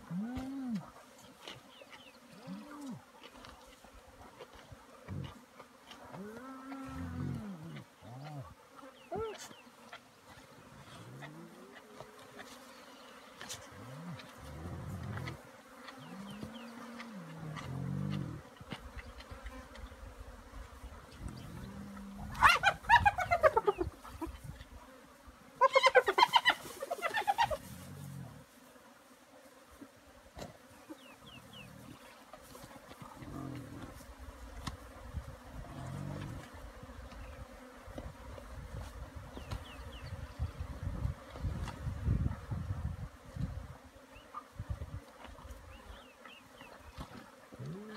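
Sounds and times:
flies buzzing: 0.0s - 47.9s
hyena growls: 6.2s - 8.5s, 13.8s - 15.4s, 17.0s - 18.4s, 33.0s - 34.0s, 35.6s - 36.5s, 47.6s - 47.9s
hyena squealing calls: 22.3s - 23.7s.

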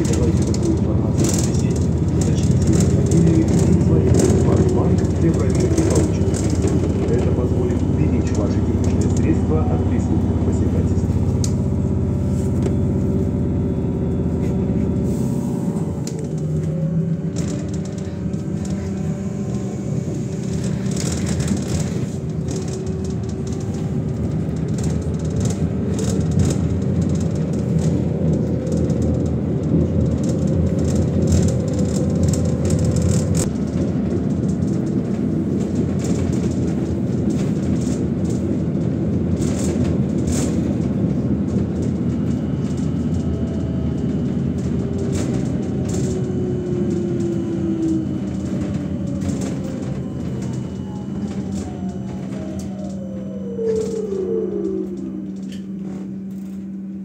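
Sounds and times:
tyres rumbling on road: 0.0s - 56.3s
deep low hum: 0.0s - 57.0s.

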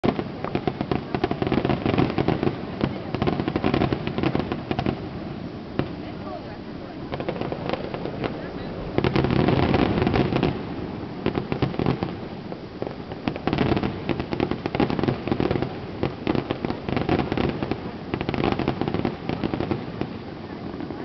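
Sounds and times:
fireworks bursting and crackling: 0.0s - 21.0s.

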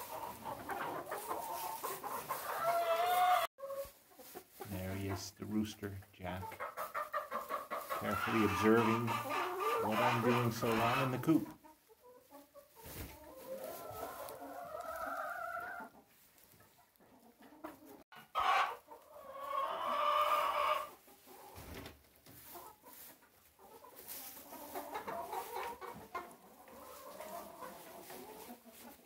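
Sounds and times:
chicken long drawn-out calls: 0.0s - 4.5s, 6.6s - 11.4s, 12.0s - 16.1s, 17.0s - 21.8s, 22.4s - 29.0s
hens clucking: 0.0s - 29.0s.

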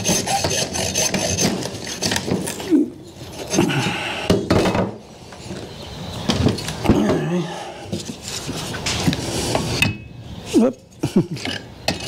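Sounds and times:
hacksaw sawing: 0.0s - 2.5s.

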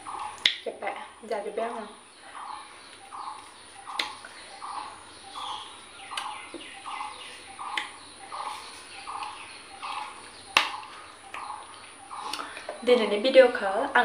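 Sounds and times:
bird calling: 0.0s - 14.0s
sharp clicks: 3.9s - 4.3s, 9.1s - 12.8s.

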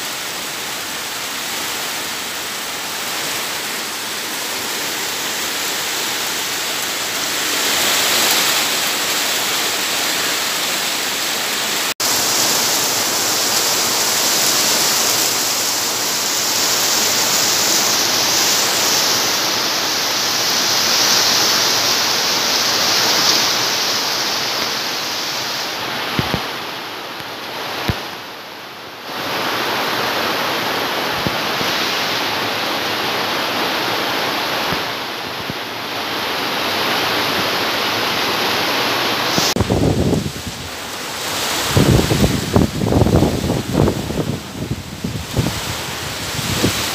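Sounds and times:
heavy rain: 0.0s - 46.9s
strong wind: 29.1s - 46.9s.

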